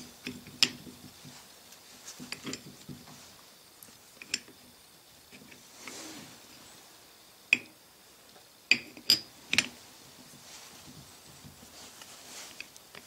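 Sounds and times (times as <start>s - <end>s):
metal parts clicking and clinking: 8.7s - 9.8s.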